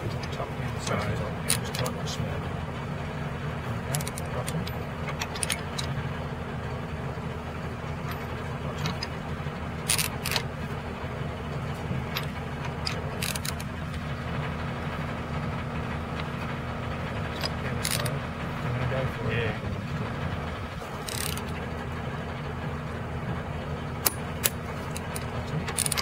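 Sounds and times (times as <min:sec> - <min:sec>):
engine idling: 0:00.0 - 0:26.0
torque wrench clicking: 0:09.9 - 0:10.4, 0:12.2 - 0:13.7, 0:17.3 - 0:18.1, 0:21.1 - 0:21.5, 0:24.0 - 0:26.0.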